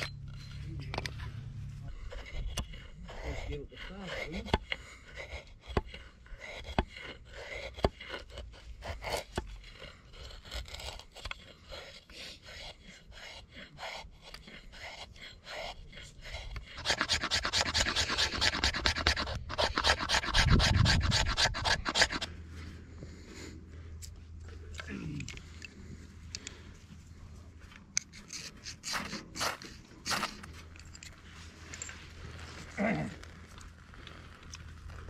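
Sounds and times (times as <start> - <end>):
blade shaving wood: 1.9 - 22.5, 27.8 - 31.6.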